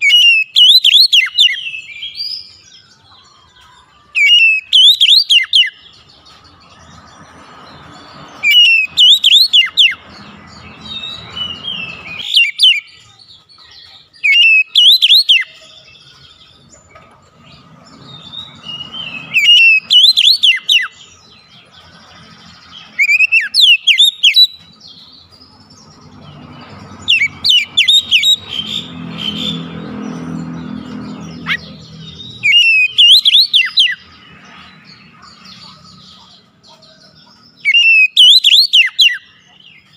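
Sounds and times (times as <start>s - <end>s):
songbird whistling: 0.0s - 6.0s, 8.4s - 13.1s, 13.8s - 16.6s, 18.0s - 21.2s, 22.7s - 25.9s, 27.0s - 29.8s, 30.4s - 34.1s, 37.6s - 39.4s.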